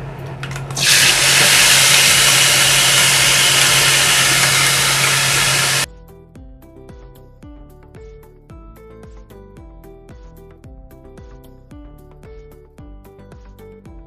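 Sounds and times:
paste sizzling in hot oil: 0.8 - 5.9.

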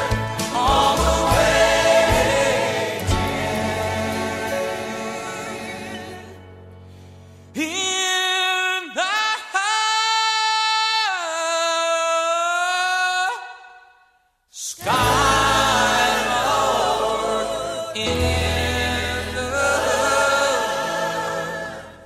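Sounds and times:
music with choir singing: 0.0 - 6.8, 14.8 - 22.0
solo voice singing long notes: 14.6 - 21.2.

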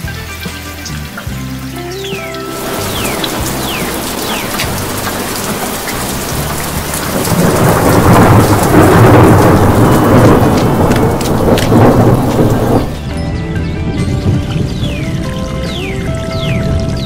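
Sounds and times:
heavy rain: 0.0 - 13.2
thunder rumble: 2.5 - 13.1.

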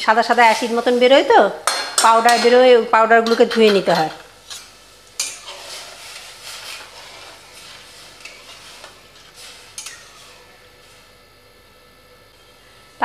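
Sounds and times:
spatula stirring lentils: 3.3 - 11.2.

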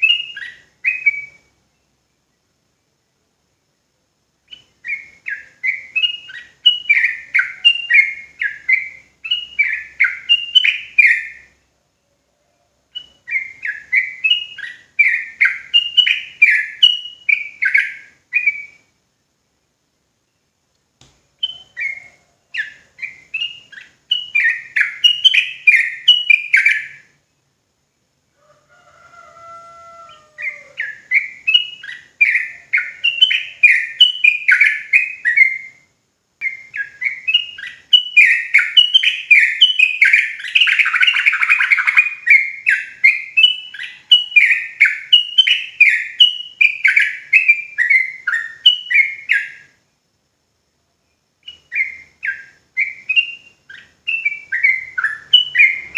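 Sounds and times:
bulbul singing chirpy notes: 4.4 - 11.6, 12.9 - 19.0, 21.3 - 27.5, 30.4 - 49.8, 51.1 - 55.9.

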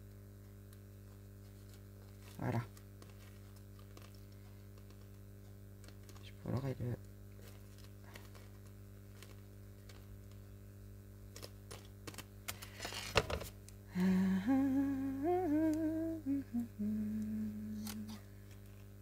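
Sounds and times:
woman humming: 13.9 - 18.3.

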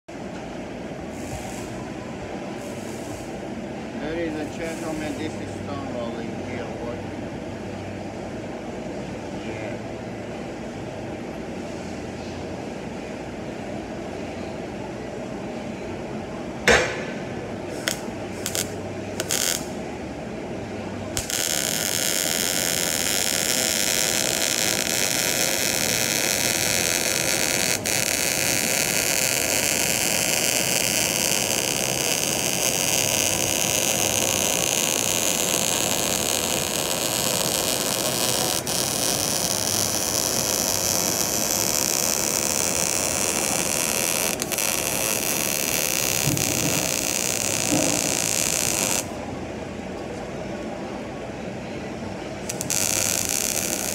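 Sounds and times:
welding arc burning: 16.7 - 19.8, 21.0 - 49.2, 52.4 - 53.9.

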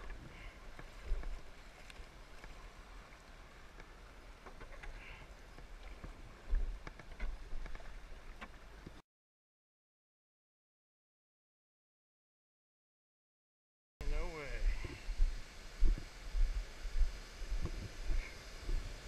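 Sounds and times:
paddle strokes splashing: 0.0 - 9.0
water rushing against hull: 0.0 - 9.0, 14.1 - 19.0.

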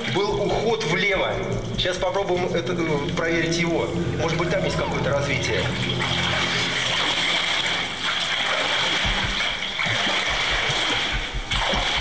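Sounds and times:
background music with low beat: 0.0 - 12.0
rushing water: 5.3 - 12.0.

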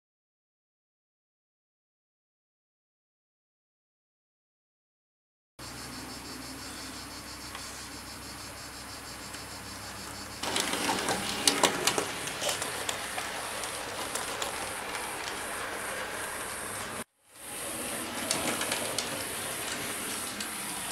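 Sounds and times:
wheels clicking over rail joints: 6.5 - 20.9
electric motor whir: 10.4 - 20.9.

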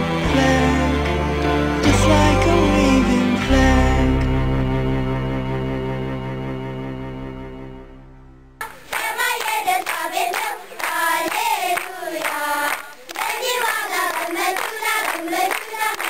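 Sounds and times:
soft sustained music: 0.0 - 8.6
children clapping in rhythm: 8.6 - 16.0
children singing together: 8.6 - 16.0.

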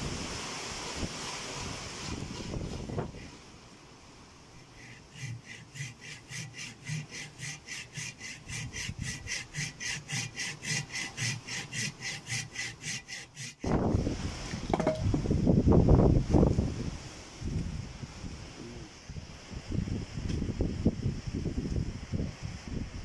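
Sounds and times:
hand saw cutting wood: 1.3 - 3.3, 4.6 - 13.9.

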